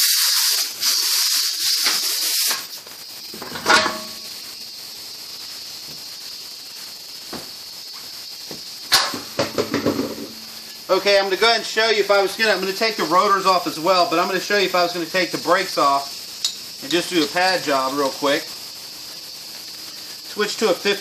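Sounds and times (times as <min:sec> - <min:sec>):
compressed air hissing: 0:00.0 - 0:21.0
metallic clank of wheel: 0:03.4 - 0:04.2.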